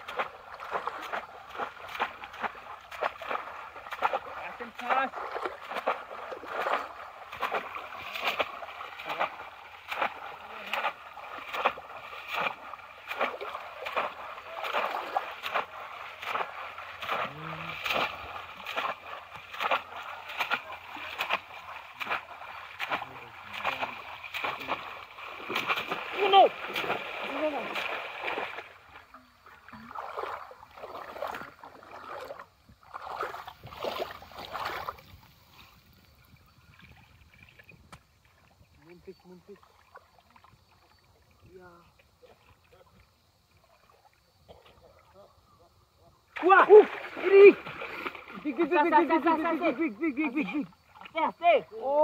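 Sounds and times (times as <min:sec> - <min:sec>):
fish traps splashing into water: 0:00.0 - 0:29.1, 0:29.7 - 0:35.2, 0:46.3 - 0:51.2
legs wading through water: 0:00.0 - 0:52.0.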